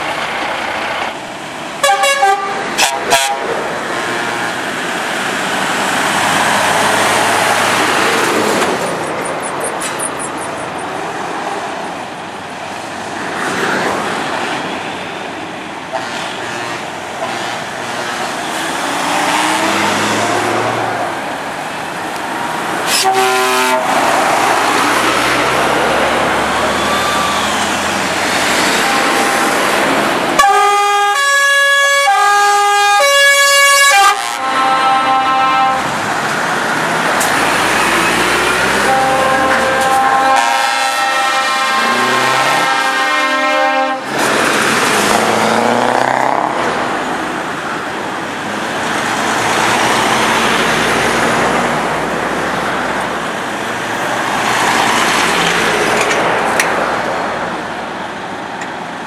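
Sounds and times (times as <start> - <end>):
diesel trucks driving past: 0.0 - 59.0
truck horn blast: 1.8 - 3.6, 16.0 - 18.5, 22.9 - 24.0, 28.6 - 29.5, 30.4 - 36.0, 38.4 - 44.2
multi-tone air horns: 1.8 - 4.6, 15.9 - 18.6, 22.8 - 24.1, 28.6 - 29.6, 30.4 - 36.0, 38.5 - 44.3.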